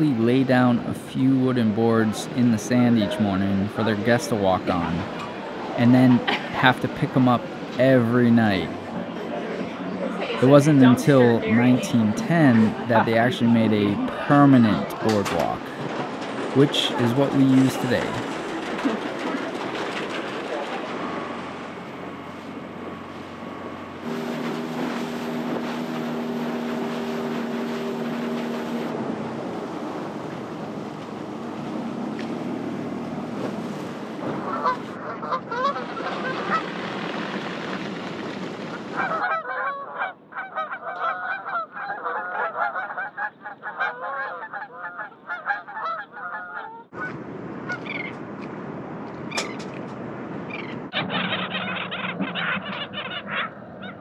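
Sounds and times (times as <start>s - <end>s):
waterbirds calling: 0.0s - 19.6s, 20.5s - 37.8s, 38.5s - 48.2s, 50.4s - 54.0s
steady hum with held tones: 21.2s - 29.0s.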